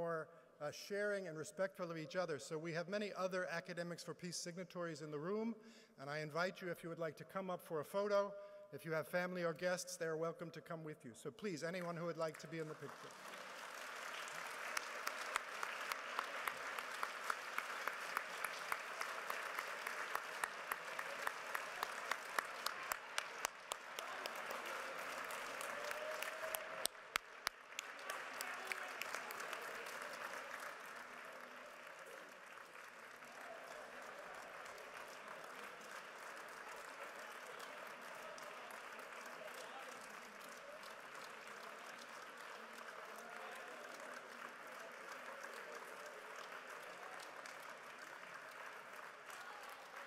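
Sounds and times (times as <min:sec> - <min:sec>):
audience applauding: 0:12.2 - 0:50.0.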